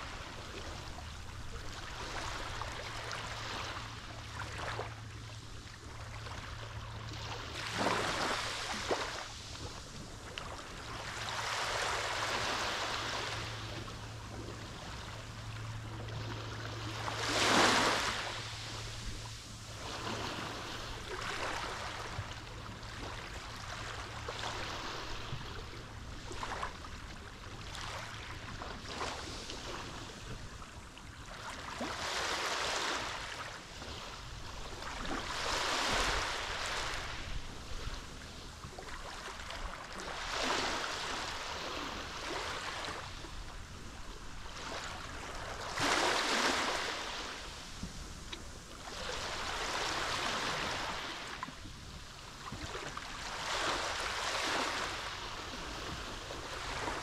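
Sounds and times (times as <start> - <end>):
sea waves washing in: 0.0 - 57.0.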